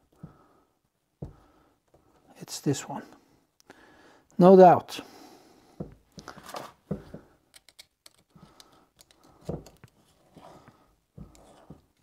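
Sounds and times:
small metal tools clicking: 7.5s - 10.0s.

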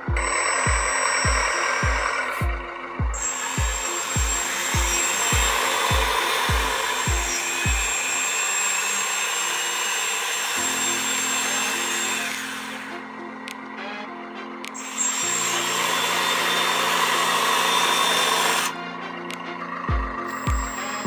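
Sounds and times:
music with kick-drum beat: 0.0s - 8.0s, 19.9s - 21.0s
sustained low tones: 0.0s - 8.0s
electric motor whirring hiss: 3.2s - 12.9s, 14.8s - 18.8s.

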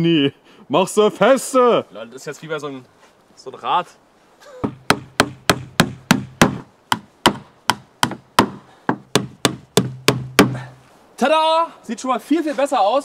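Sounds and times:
hammer striking nails into wood: 4.6s - 10.6s.

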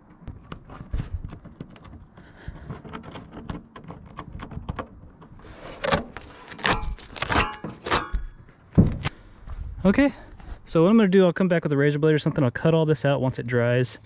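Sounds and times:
rubber gasket rubbing and squeaking: 0.0s - 8.4s
tool clicking and scraping on glass: 0.2s - 8.3s.

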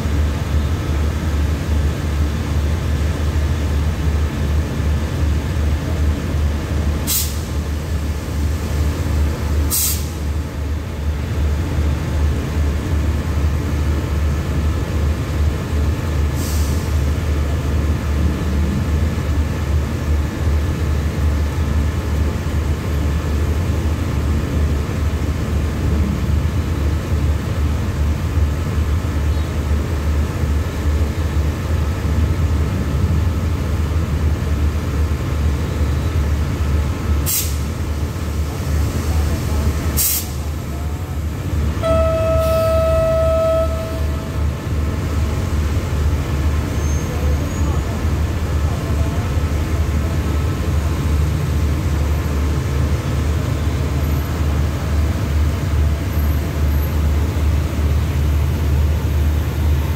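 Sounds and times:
brake air hissing: 7.0s - 7.5s, 9.7s - 10.2s, 37.2s - 37.8s, 40.0s - 40.6s.

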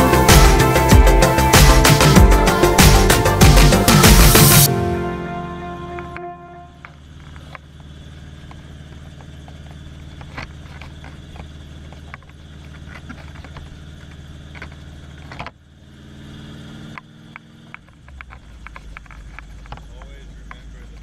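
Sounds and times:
helicopter engine drone: 0.0s - 10.2s.

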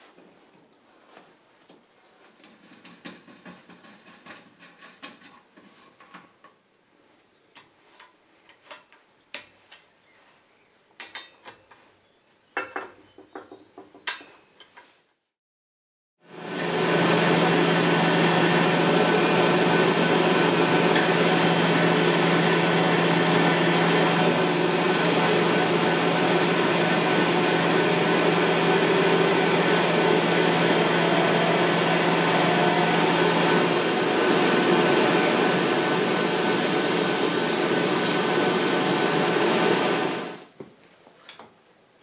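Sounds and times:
metal lathe running: 16.3s - 40.4s.

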